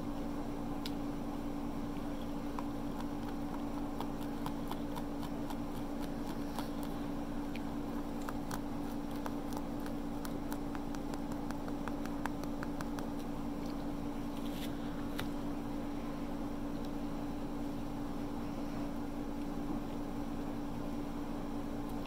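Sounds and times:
steady low hum: 0.0 - 22.0
chewing clicks and crackles: 2.0 - 13.9.

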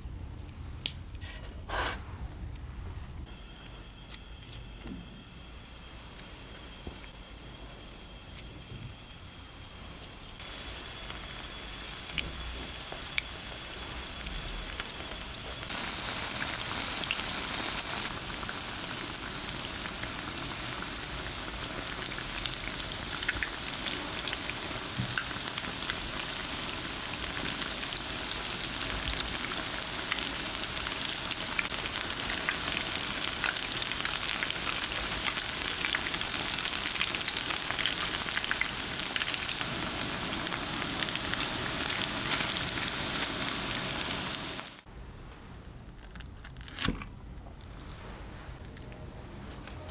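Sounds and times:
food sizzling in oil: 5.3 - 44.9.

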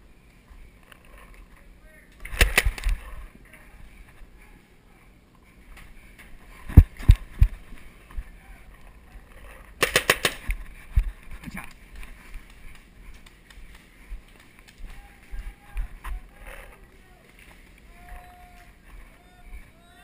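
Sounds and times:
paintball markers firing: 2.2 - 3.1, 9.8 - 10.6.

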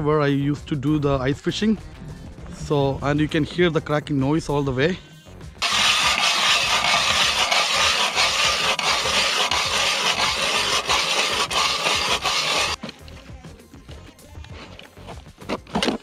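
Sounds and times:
ice auger grinding through ice: 5.6 - 12.8.

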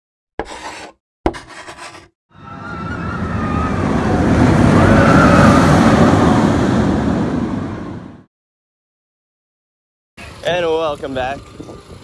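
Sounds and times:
rushing roar with whine: 2.4 - 8.3.

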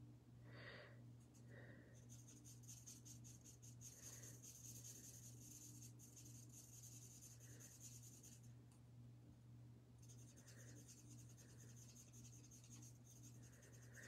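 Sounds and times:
steady low hum: 0.0 - 14.0
marker scratching on cardstock: 2.1 - 8.4, 10.0 - 14.0.

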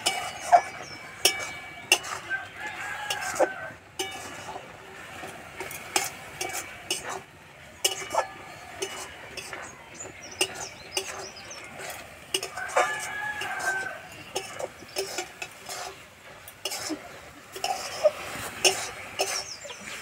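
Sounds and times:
metal spatula scraping wok: 0.0 - 19.8
rooster crowing: 2.2 - 3.8, 12.4 - 14.1.

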